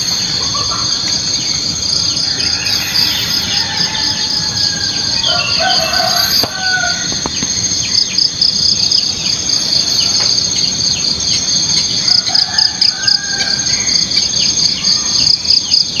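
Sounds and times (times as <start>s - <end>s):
distant rooster crowing: 0.0s - 7.4s, 11.8s - 14.2s
bird chirps: 0.0s - 12.1s
insect trilling: 0.0s - 16.0s.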